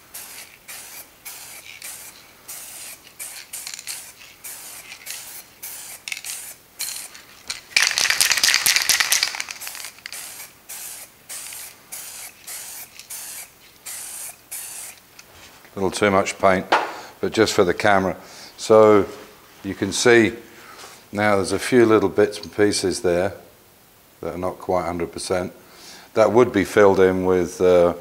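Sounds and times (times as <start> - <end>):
aerosol spray hissing: 0.0 - 15.2.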